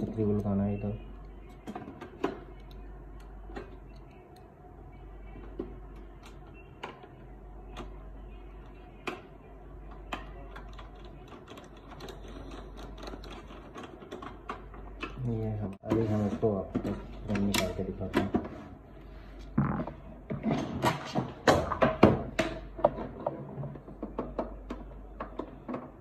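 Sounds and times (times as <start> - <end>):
faint steady hum: 0.0 - 15.9.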